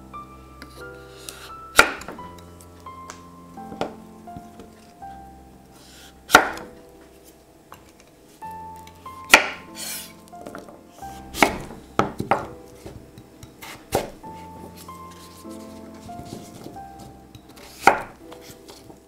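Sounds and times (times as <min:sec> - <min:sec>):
background music: 0:00.0 - 0:19.0
knife chopping squash on board: 0:01.4 - 0:02.2, 0:06.3 - 0:06.7, 0:09.3 - 0:10.0, 0:11.3 - 0:14.2, 0:17.5 - 0:18.8.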